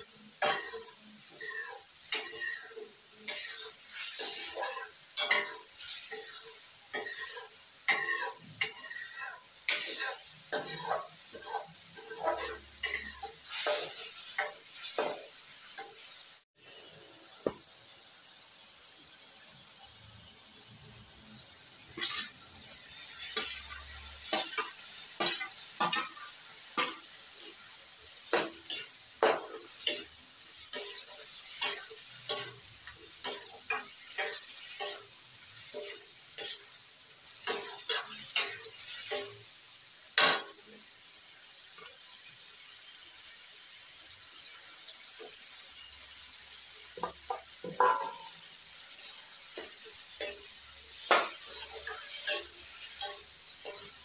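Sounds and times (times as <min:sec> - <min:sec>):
gravy sizzling in pan: 0:00.0 - 0:54.0
metal spoon scraping pan: 0:00.4 - 0:15.2, 0:22.0 - 0:22.4, 0:47.0 - 0:48.4.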